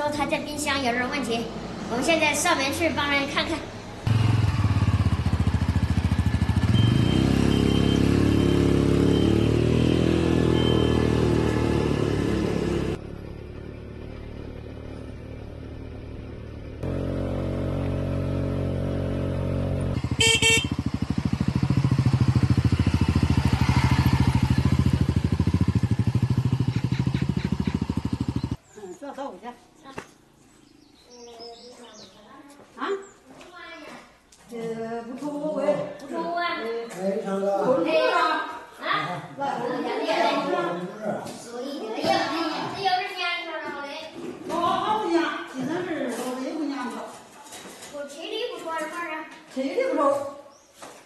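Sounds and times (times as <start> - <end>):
quad bike engine running: 4.1 - 28.6
short horn beep: 6.6 - 11.4, 20.1 - 20.8.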